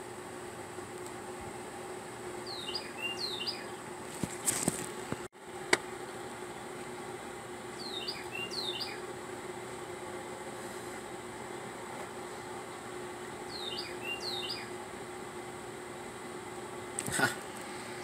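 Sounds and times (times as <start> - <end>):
steady hum: 0.0 - 18.0
small bird chirping: 2.4 - 3.8, 7.8 - 9.0, 13.5 - 14.7.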